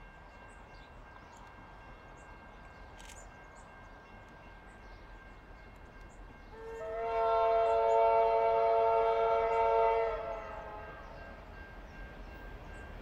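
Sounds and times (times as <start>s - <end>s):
locomotive horn chord: 6.5s - 11.3s.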